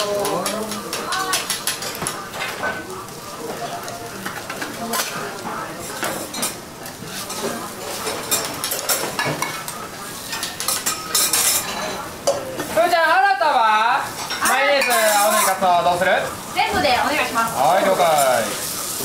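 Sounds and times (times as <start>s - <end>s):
light sizzle: 0.0s - 19.0s
metal spatulas scraping a griddle: 14.2s - 15.7s.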